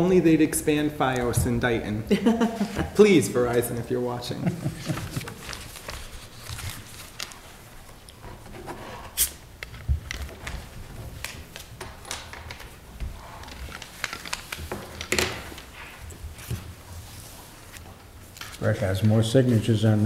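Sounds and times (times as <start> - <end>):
paper rustling: 4.6 - 9.4, 10.0 - 18.9.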